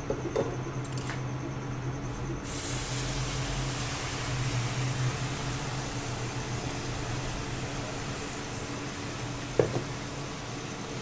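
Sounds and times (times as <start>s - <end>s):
syrup sizzling in hot ghee: 2.6s - 9.4s.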